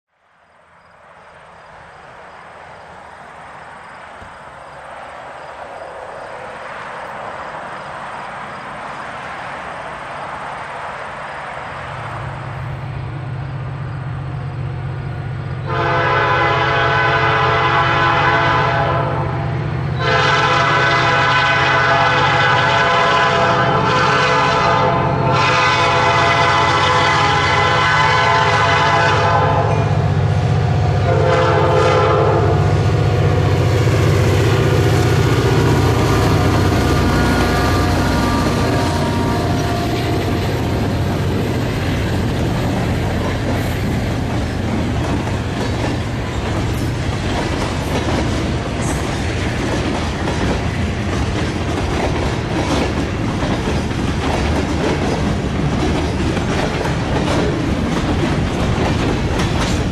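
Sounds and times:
train rumble: 0:00.5 - 0:59.9
locomotive engine drone: 0:00.6 - 0:18.3, 0:25.0 - 0:59.9
locomotive air horn: 0:15.6 - 0:41.1.

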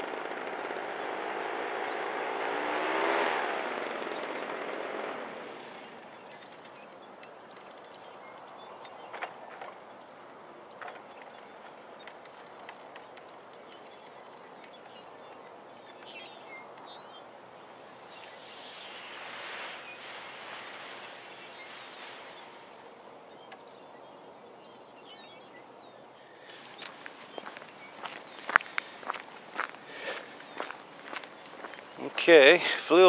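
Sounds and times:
small bird chirps: 0:11.1 - 0:29.7
steady hiss: 0:17.2 - 0:23.7.

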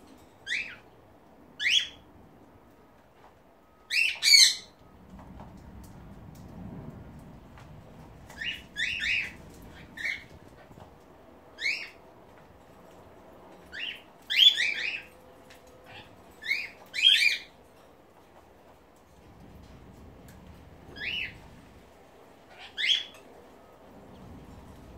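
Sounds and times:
cockatiels calling: 0:08.4 - 0:10.4, 0:11.6 - 0:12.0, 0:13.7 - 0:15.1, 0:22.5 - 0:23.2.

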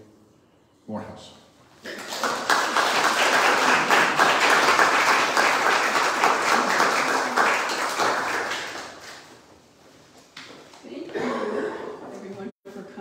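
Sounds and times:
audience applauding: 0:01.8 - 0:09.3.

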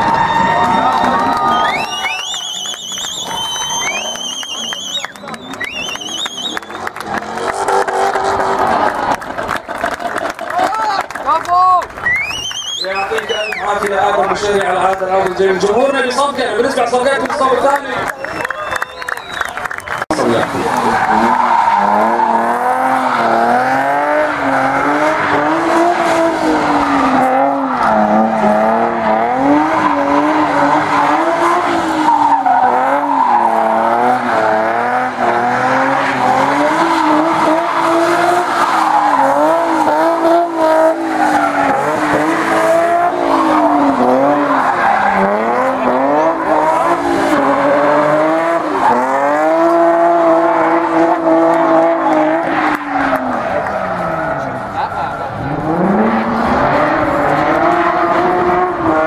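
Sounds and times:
car engine revving high: 0:00.0 - 0:09.7, 0:20.0 - 0:59.0.

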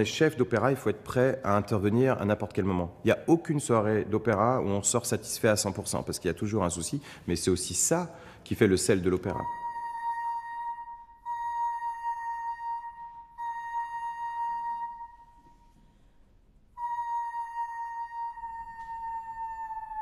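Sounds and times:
flute playing long high notes: 0:09.3 - 0:15.8, 0:16.8 - 0:20.0.

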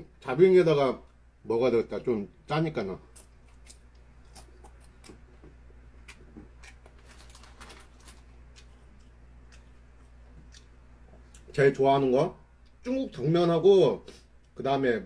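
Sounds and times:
low steady hum: 0:00.0 - 0:15.0
chewing sounds: 0:03.1 - 0:11.5.

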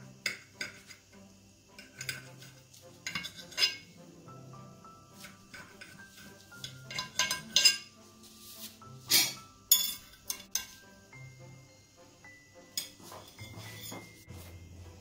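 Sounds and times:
soft background music: 0:00.0 - 0:15.0
knife clinking on ceramic plate: 0:03.1 - 0:03.8, 0:06.6 - 0:07.9, 0:09.7 - 0:10.8.

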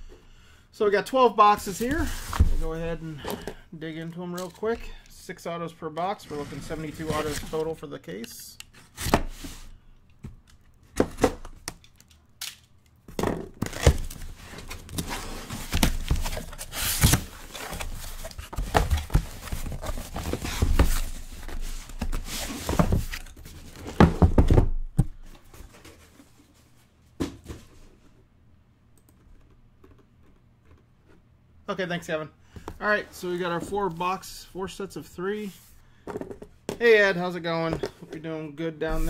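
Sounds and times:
boxes thunking down: 0:13.1 - 0:25.2.

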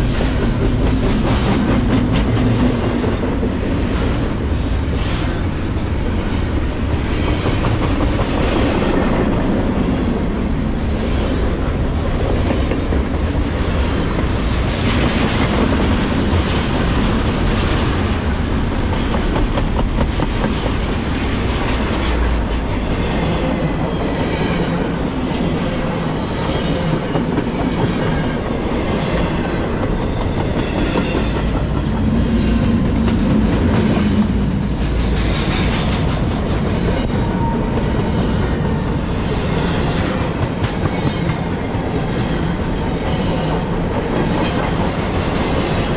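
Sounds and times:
clickety-clack over rail joints: 0:00.0 - 0:45.9
freight train wheels rumbling: 0:00.0 - 0:45.9
high wheel squeals: 0:13.9 - 0:15.4.

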